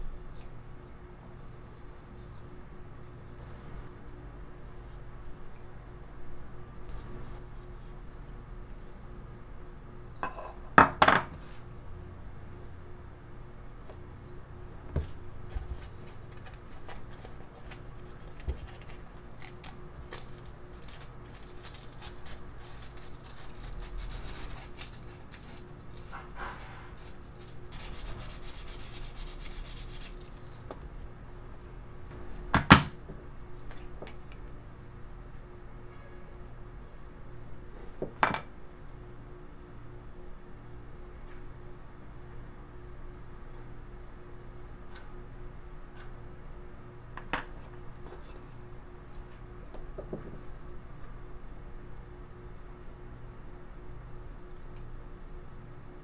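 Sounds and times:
sandpaper rubbing on wood: 23.7 - 30.4.

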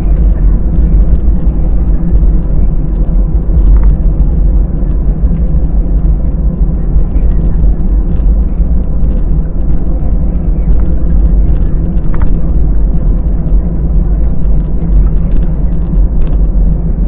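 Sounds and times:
aircraft engines rumbling: 0.0 - 17.0
faint steady hum: 0.0 - 17.0
wheels rolling on taxiway: 0.0 - 17.0.

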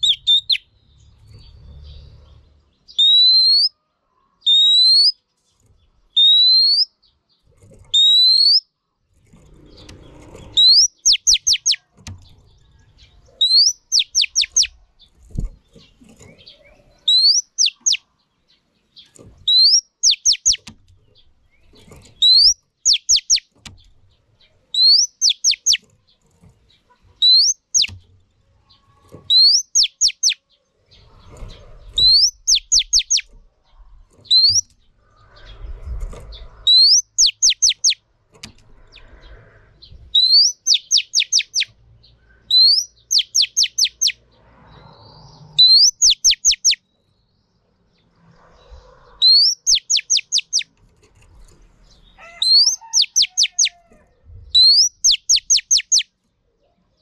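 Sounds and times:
bird singing whistled phrase: 0.0 - 0.7, 2.9 - 3.7, 17.1 - 18.0, 19.5 - 20.6, 24.8 - 25.8, 27.2 - 27.9, 32.0 - 33.3, 36.7 - 38.0, 40.2 - 41.7, 49.2 - 50.7, 54.6 - 56.1.

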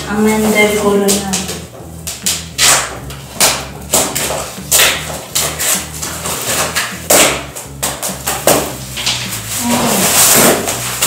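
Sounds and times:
plastic crinkling: 8.7 - 11.0.

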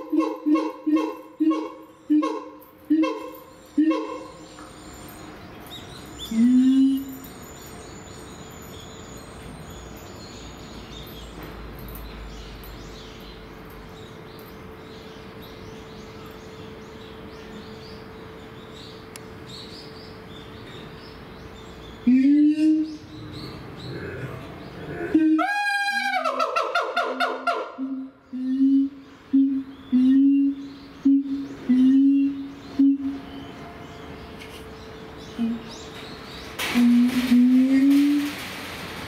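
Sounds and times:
ape whooping call: 25.1 - 27.9.

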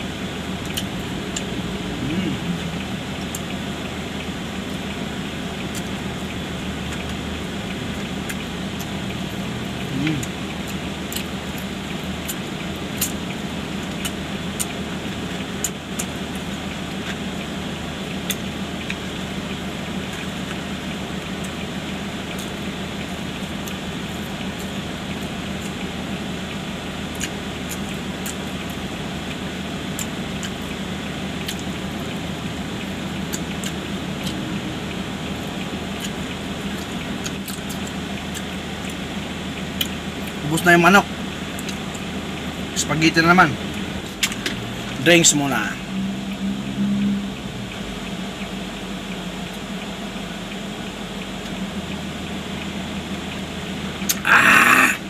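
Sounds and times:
car cabin hum and hiss: 0.0 - 54.2
chewing and lip smacks: 0.6 - 3.6, 5.6 - 17.5, 20.1 - 26.0, 27.1 - 39.0, 39.6 - 40.4, 41.5 - 42.1.

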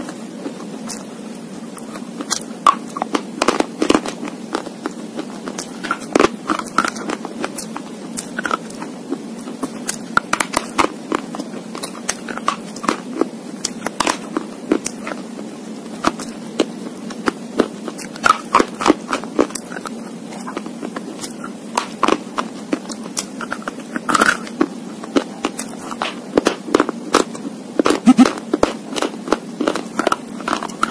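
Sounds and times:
teeth crunching pencil pieces: 1.9 - 8.8, 18.0 - 30.9.

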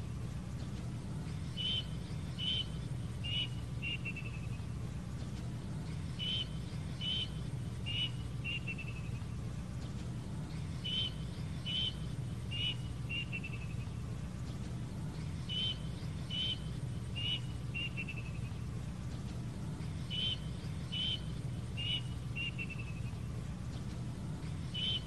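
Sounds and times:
low steady hum: 0.0 - 25.0
cuckoo calling: 1.5 - 4.8, 5.8 - 9.5, 10.5 - 14.1, 15.2 - 18.8, 19.8 - 25.0.

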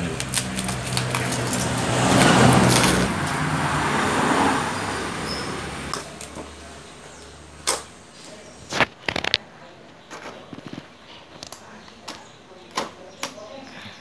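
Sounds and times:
motor vehicle passing by: 0.0 - 8.4.

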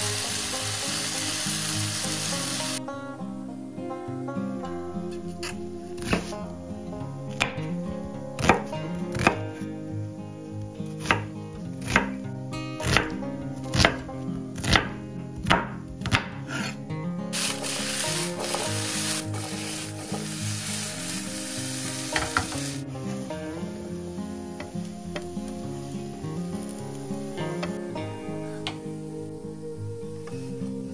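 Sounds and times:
food sizzling in frying pan: 0.0 - 2.8, 17.3 - 27.8
knife chopping on cutting board: 11.0 - 11.2, 11.8 - 12.2, 13.7 - 14.0.

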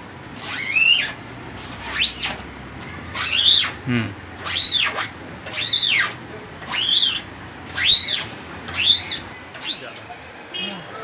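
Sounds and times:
emulsion coater squeaking on mesh: 0.4 - 1.2, 1.8 - 2.4, 3.1 - 3.8, 4.4 - 11.0.

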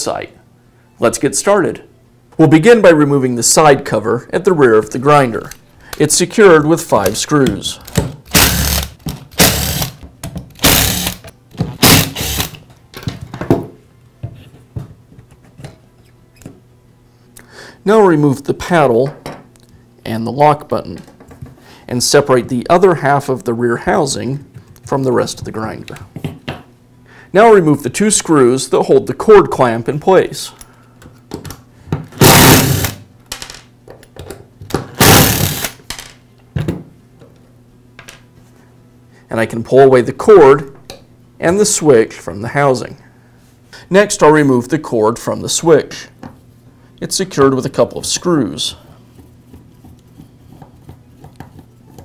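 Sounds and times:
screwdriver removing screws: 7.9 - 10.0, 10.6 - 11.2, 11.8 - 12.6, 32.2 - 33.0, 35.0 - 35.7
power drill running: 8.3 - 10.0, 10.6 - 11.2, 11.8 - 12.6, 32.2 - 33.0, 35.0 - 35.8.

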